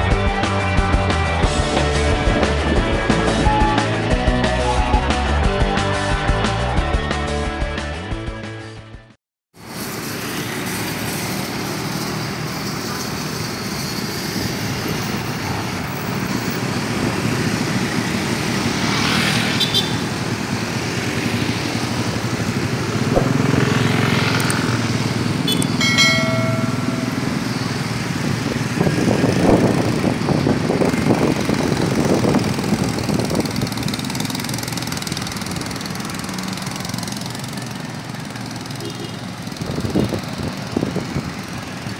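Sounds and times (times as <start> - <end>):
motorcycles and cars passing: 9.6 - 41.9.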